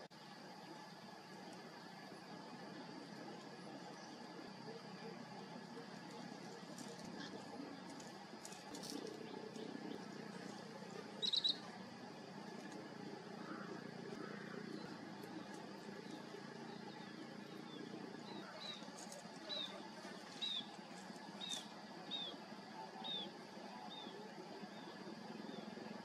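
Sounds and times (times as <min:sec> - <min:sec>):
faint background hiss: 0:00.0 - 0:26.0
high-pitched bird chirps: 0:11.2 - 0:11.6.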